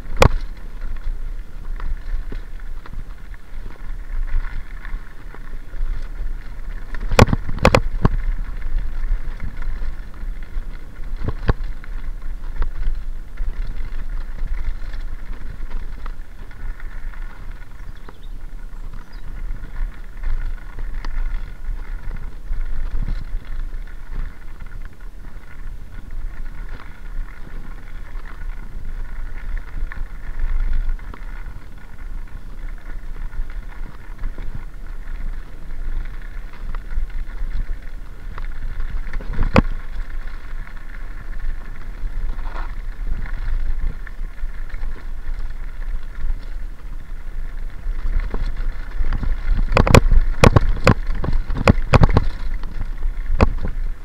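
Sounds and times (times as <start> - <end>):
bike tyres rattling over gravel: 0.0 - 54.0
wind buffeting microphone: 0.0 - 54.0
bike knocking over bumps: 47.8 - 53.8.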